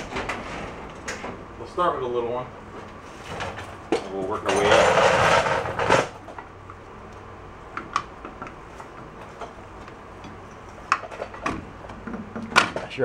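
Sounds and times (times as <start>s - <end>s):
rustling clatter: 0.0s - 1.5s, 2.7s - 6.4s.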